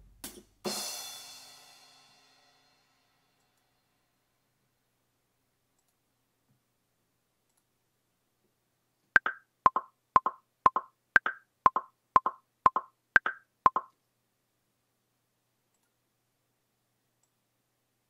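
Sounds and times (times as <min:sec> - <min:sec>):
metronome clicks: 0:09.2 - 0:13.9.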